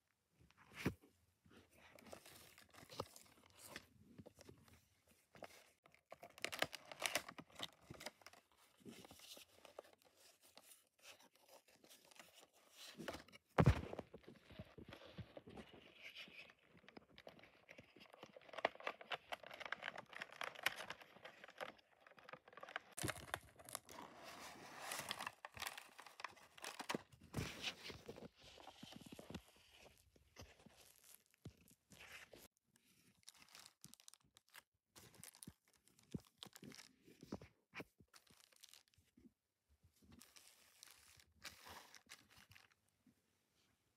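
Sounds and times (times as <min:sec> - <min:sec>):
packaging rustling and crinkling: 0:05.4 - 0:37.4.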